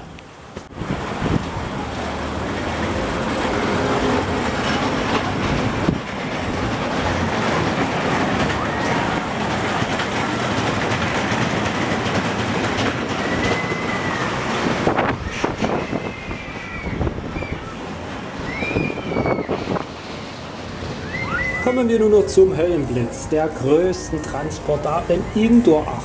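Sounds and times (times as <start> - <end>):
roller coaster rumble and clatter: 0.0 - 26.0
high squeal: 13.1 - 19.9, 21.0 - 22.4, 23.4 - 26.0.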